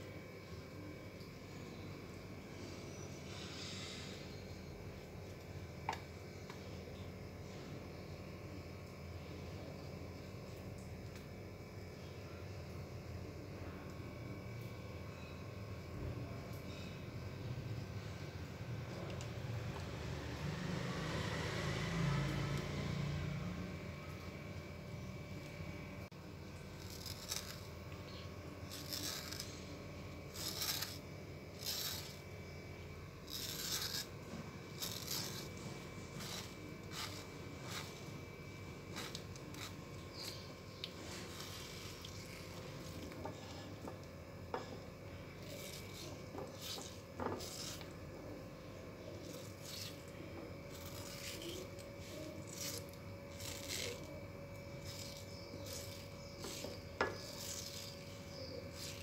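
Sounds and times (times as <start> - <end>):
knife scraping and slicing mango: 26.7 - 32.6, 33.2 - 48.0, 49.0 - 59.0.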